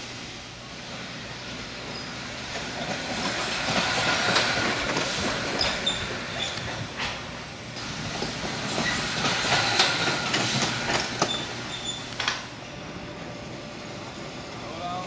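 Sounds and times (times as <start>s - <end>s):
wheels rumbling on steel rails: 0.5s - 14.9s
short squeaks: 5.5s - 6.8s, 10.9s - 12.3s.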